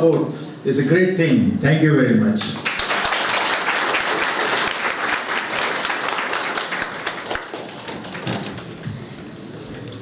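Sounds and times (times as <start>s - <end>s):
audience applauding: 2.6s - 8.8s.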